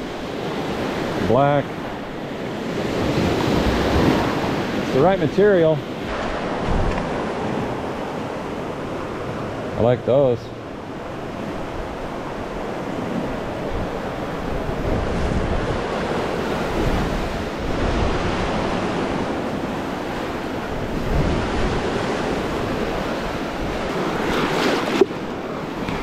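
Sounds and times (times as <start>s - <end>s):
lake waves washing ashore: 0.0s - 26.0s
wind on microphone: 5.9s - 9.7s, 10.7s - 26.0s.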